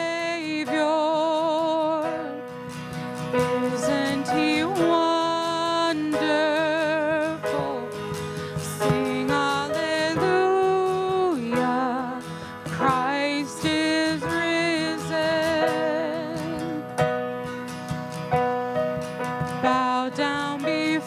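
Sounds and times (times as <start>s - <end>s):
worship band playing slow song: 0.0s - 21.0s.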